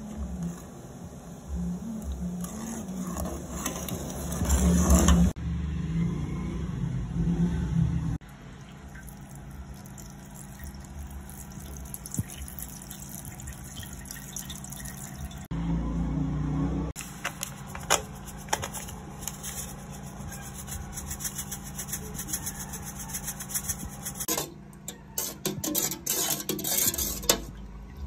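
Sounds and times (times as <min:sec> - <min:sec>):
water trickling into sieve: 0:08.2 - 0:15.5.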